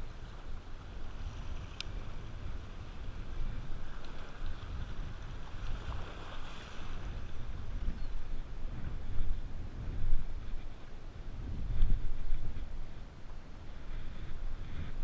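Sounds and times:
wind buffeting microphone: 0.0s - 15.0s
surf breaking on rocks: 3.6s - 7.3s.

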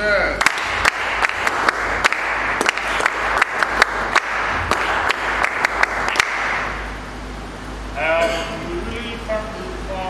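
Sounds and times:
crowd applause: 0.4s - 6.8s
loud single hand claps: 0.4s - 6.8s.

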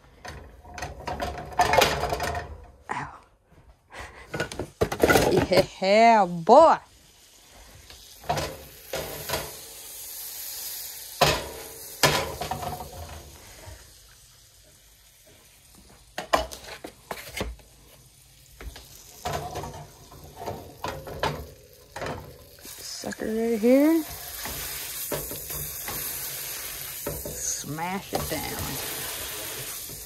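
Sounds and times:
meat sizzling in a frying pan: 6.2s - 16.6s, 17.6s - 30.0s
spatula knocking and scraping pan: 19.2s - 22.6s, 24.0s - 30.0s.

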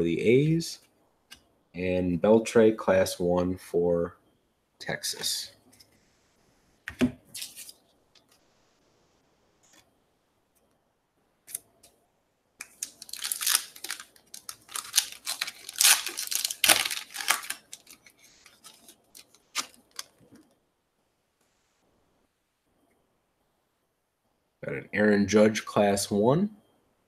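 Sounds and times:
wrapper tearing and crinkling: 12.6s - 20.2s.

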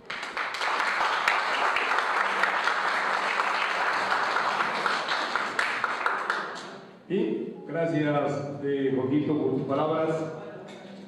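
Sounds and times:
people applauding: 0.0s - 6.9s.

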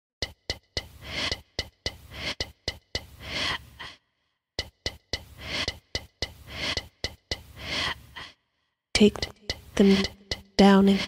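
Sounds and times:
beatboxing mouth clicks and snares: 0.2s - 3.9s, 4.6s - 8.0s, 9.0s - 11.0s
breathy inhaling: 0.8s - 4.1s, 5.2s - 8.6s.

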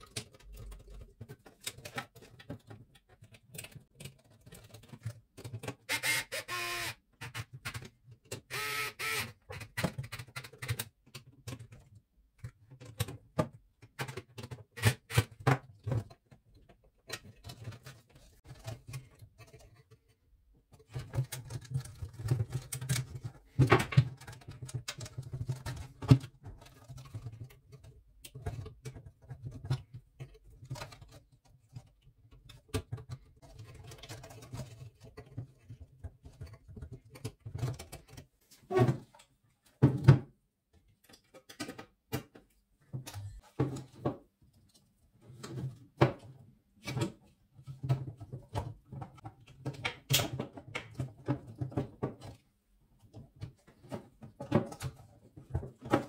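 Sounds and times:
hands clicking in plastic housing: 0.0s - 5.9s, 9.4s - 38.3s.

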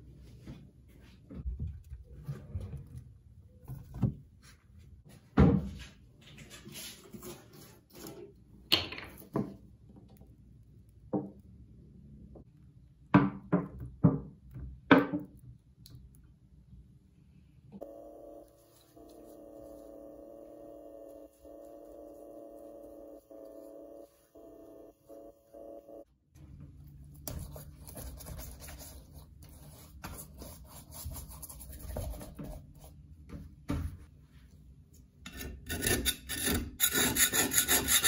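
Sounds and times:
faint steady hum: 15.4s - 29.9s.

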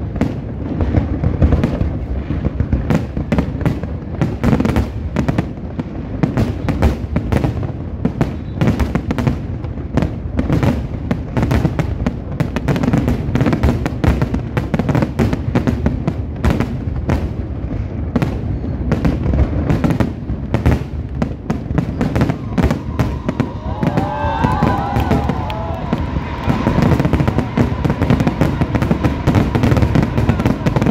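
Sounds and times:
fireworks bursting: 0.0s - 30.9s
deep rumble: 24.8s - 30.9s.

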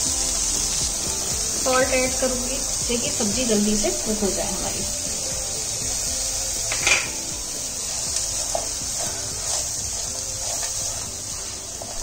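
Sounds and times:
vegetables sizzling in a pan: 0.0s - 12.0s
spatula scraping pan: 6.7s - 12.0s.

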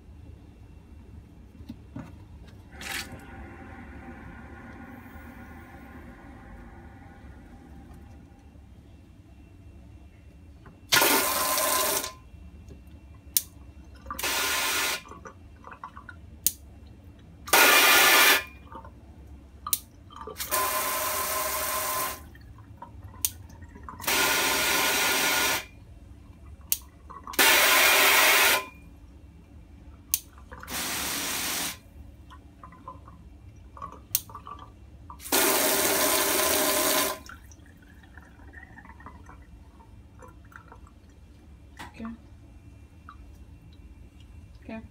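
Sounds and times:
hose water spraying into sink: 14.2s - 15.0s, 17.5s - 18.5s, 24.0s - 25.7s, 27.4s - 28.7s, 30.7s - 31.8s, 35.2s - 37.2s.

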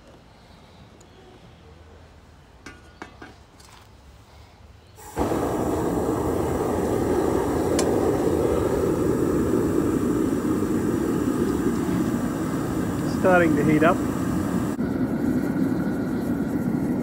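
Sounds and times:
gas burner rushing: 5.0s - 17.0s.

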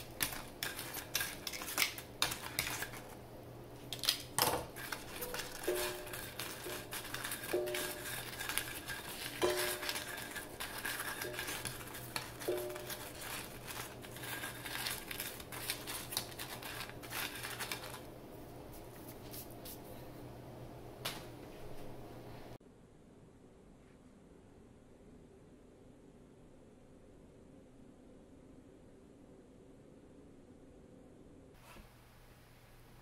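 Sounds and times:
breadsticks scraping on ceramic plate: 0.0s - 3.2s, 4.6s - 18.1s.

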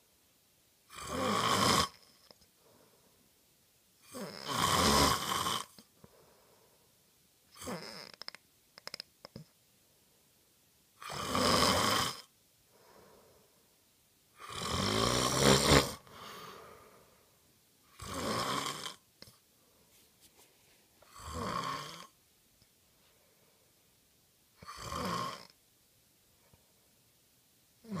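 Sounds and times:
quiet breaths: 0.0s - 28.0s
person snoring: 0.9s - 2.3s, 4.0s - 5.8s, 7.5s - 9.0s, 11.0s - 12.3s, 14.4s - 17.1s, 17.9s - 19.0s, 21.0s - 22.2s, 24.6s - 25.6s
faint clicks: 8.2s - 9.5s.

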